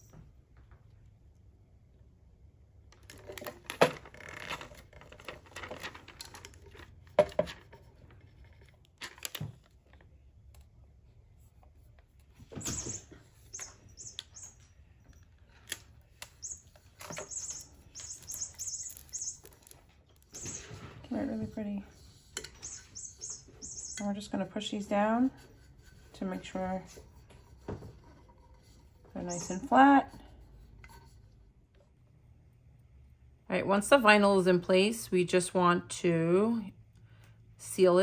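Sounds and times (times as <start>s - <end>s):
transfer tape rustling: 2.9s - 10.8s, 11.6s - 21.2s.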